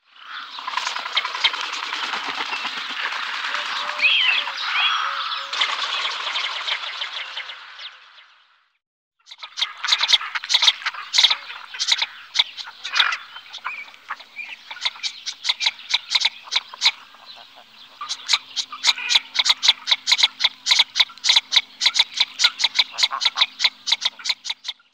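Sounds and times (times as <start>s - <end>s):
duck dry clicking calls: 9.3s - 24.8s.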